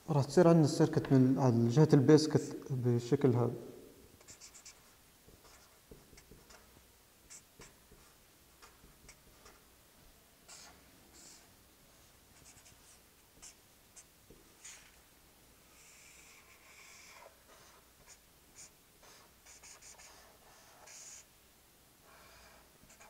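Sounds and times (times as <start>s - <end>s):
marker pen scratching on paper: 4.2s - 9.7s, 10.4s - 15.0s, 15.7s - 21.3s, 22.0s - 23.0s.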